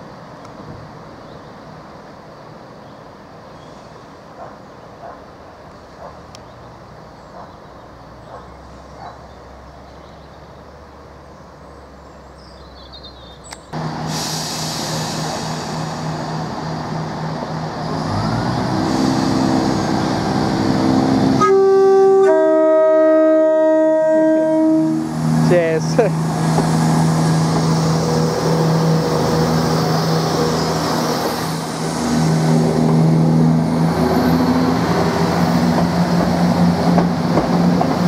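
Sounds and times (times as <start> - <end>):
train diesel engines idling: 13.8 - 22.2, 24.1 - 38.0
engines revving with rising growl: 17.5 - 21.4.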